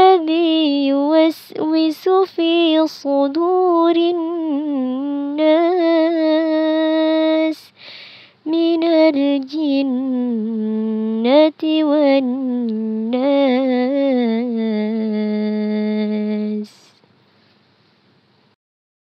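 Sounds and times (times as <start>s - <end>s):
person breathing: 7.7s - 8.4s.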